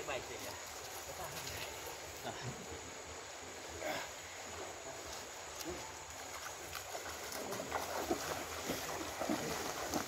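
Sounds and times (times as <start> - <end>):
shallow river water running: 0.0 - 10.0
person wading into water: 6.2 - 10.0.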